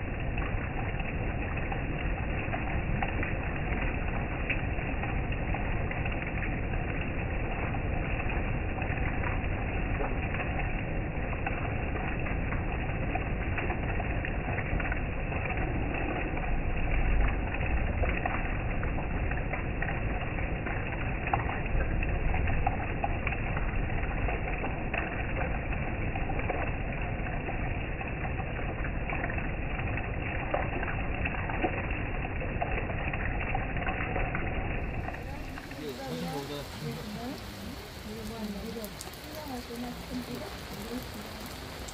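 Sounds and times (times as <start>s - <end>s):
heavy rain pattering: 0.0s - 41.9s
deep rumble: 26.6s - 41.9s.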